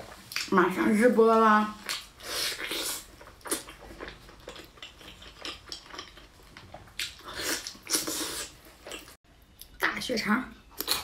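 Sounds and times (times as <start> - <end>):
person chewing and slurping: 1.9 - 9.2.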